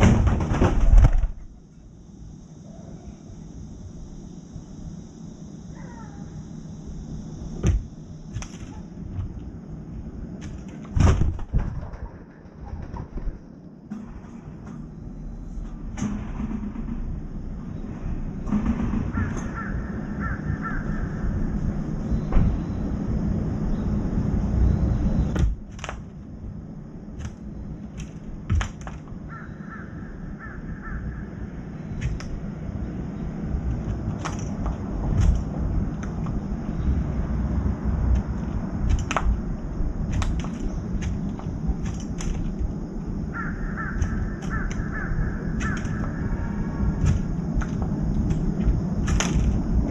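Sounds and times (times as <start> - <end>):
bird wings flapping: 0.0 - 1.4, 7.6 - 9.5, 10.4 - 13.6, 27.1 - 29.2, 32.0 - 32.4, 33.7 - 36.4, 38.0 - 42.8, 43.4 - 49.9
faint short bird calls: 5.7 - 6.4, 19.1 - 21.4, 29.3 - 32.0
crow pecking on metal tray: 18.5 - 21.1, 40.1 - 49.7.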